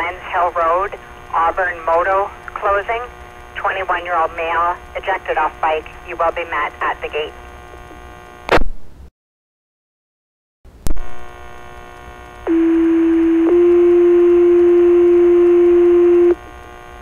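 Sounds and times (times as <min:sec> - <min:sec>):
radio hiss: 0:00.0 - 0:08.0.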